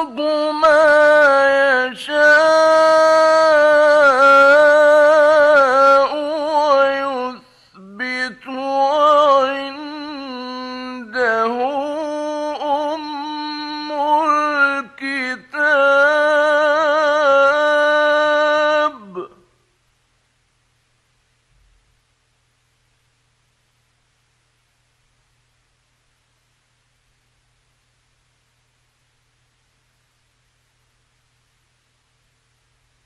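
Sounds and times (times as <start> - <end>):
man chanting recitation: 0.0 - 19.4.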